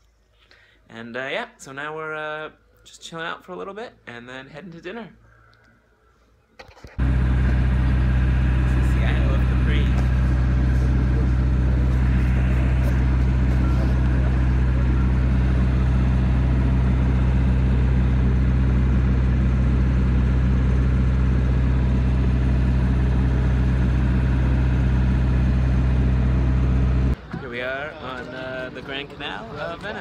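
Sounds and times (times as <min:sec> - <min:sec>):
motorboat engine droning: 0:07.0 - 0:30.0.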